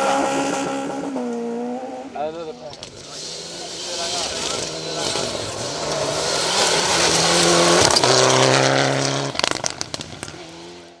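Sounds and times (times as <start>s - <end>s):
rally car engine accelerating: 0.0s - 11.0s
engine exhaust cracks: 6.8s - 11.0s.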